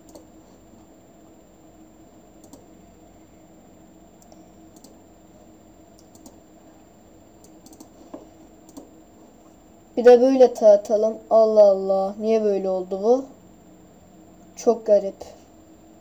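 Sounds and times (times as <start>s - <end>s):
computer mouse clicks: 0.0s - 0.3s, 2.4s - 2.7s, 4.2s - 5.0s, 6.0s - 6.4s, 7.4s - 8.0s, 8.6s - 8.9s
low steady hum: 0.0s - 16.0s.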